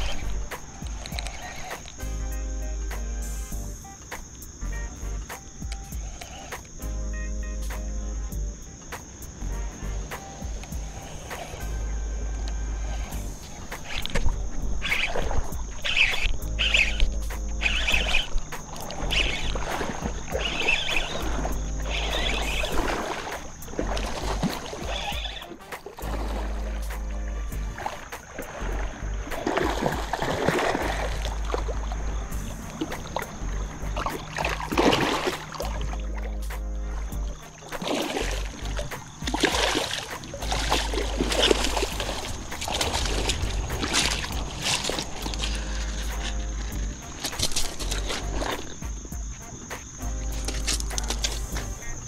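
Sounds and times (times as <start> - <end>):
water splashing: 0.0 - 2.2, 9.0 - 52.0
wind rumble on microphone: 9.3 - 25.4, 38.2 - 52.0
short high rasps: 14.8 - 23.6
fishing reel being worked: 15.8 - 19.6, 21.8 - 22.7.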